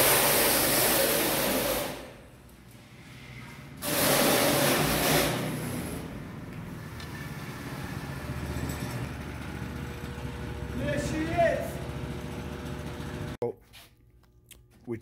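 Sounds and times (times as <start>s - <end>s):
go-kart engine revving: 3.8s - 6.2s, 7.3s - 13.4s
go-kart engine idling: 8.0s - 13.4s.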